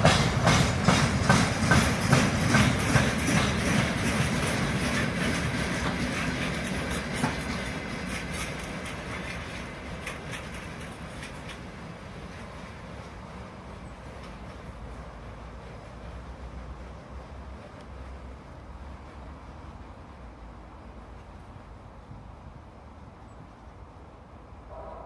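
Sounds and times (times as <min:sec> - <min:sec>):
train wheels clicking over rail joints: 0:00.0 - 0:18.4
low train rumble: 0:00.0 - 0:25.0.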